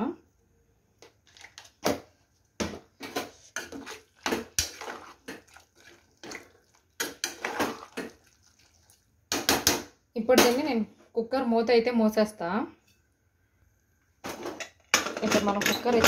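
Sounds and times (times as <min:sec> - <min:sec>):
metal ladle scraping pot: 0:03.0 - 0:08.3
wet slopping of curry: 0:03.3 - 0:09.1.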